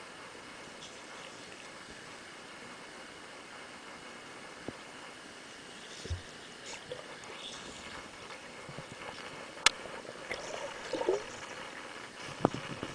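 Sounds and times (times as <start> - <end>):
underwater sloshing and bubbling: 3.7 - 12.9
bubbly gurgles: 5.7 - 12.9.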